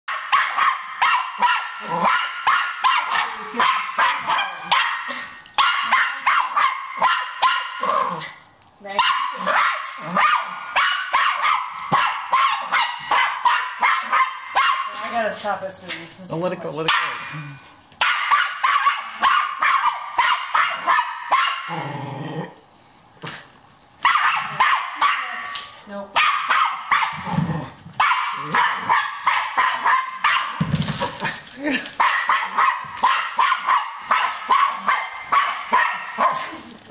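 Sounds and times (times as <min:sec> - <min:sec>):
dog barking: 0:00.1 - 0:08.2, 0:09.0 - 0:15.0, 0:16.9 - 0:21.7, 0:24.0 - 0:25.5, 0:26.2 - 0:27.3, 0:28.0 - 0:30.6, 0:32.0 - 0:36.6
dog growling: 0:01.8 - 0:02.2, 0:07.8 - 0:08.4, 0:21.6 - 0:22.6, 0:27.2 - 0:28.9.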